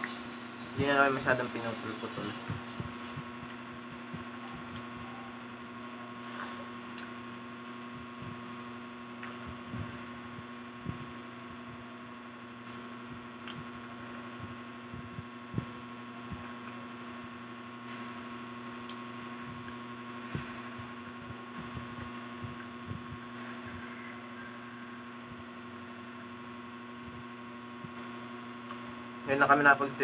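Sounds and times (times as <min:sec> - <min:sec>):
electrical hum: 0:00.0 - 0:30.0
chewing fried food: 0:08.2 - 0:09.7, 0:18.6 - 0:24.1.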